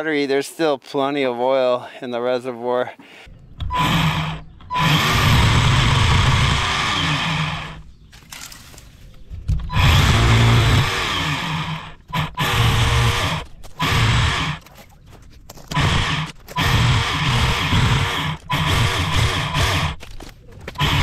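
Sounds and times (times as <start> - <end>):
electric chainsaw cutting branches: 3.6 - 8.8, 9.7 - 14.7, 15.7 - 21.0.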